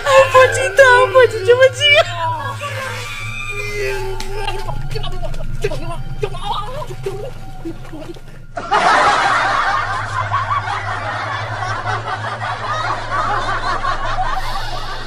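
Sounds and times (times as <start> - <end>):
low steady hum: 0.0 - 15.0
laughter: 8.6 - 15.0.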